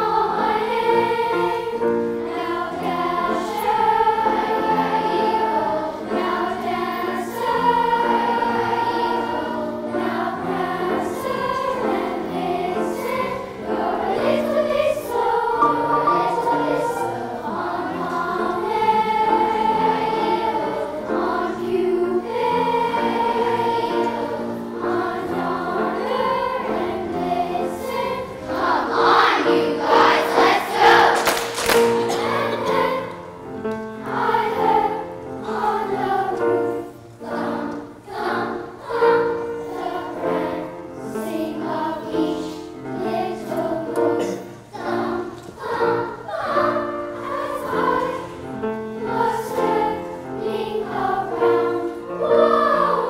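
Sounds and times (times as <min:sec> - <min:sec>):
children's choir singing: 0:00.0 - 0:53.0.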